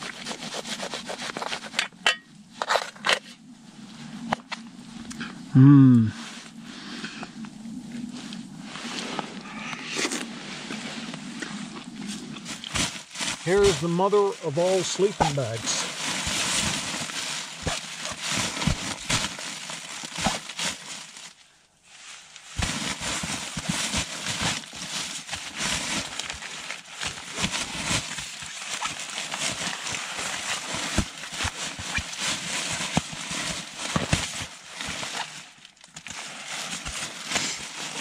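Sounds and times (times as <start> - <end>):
sleeping bag rustling: 7.9 - 38.0.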